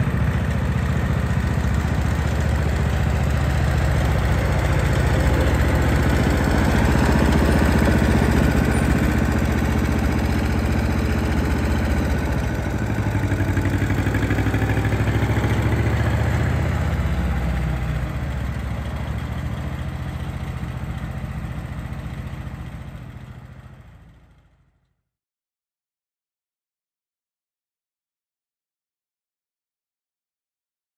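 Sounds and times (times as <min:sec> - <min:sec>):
tractor engine running: 0:00.0 - 0:24.6.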